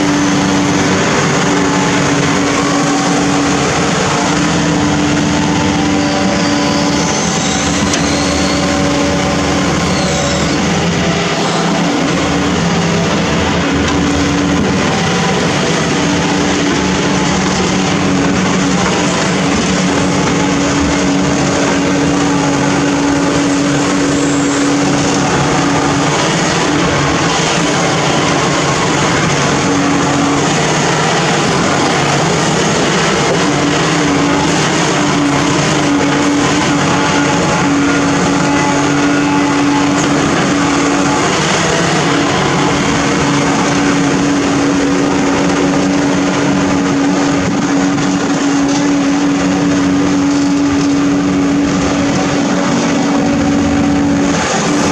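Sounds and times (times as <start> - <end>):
engine rumble: 0.0 - 54.9
steady droning tone: 0.0 - 54.9.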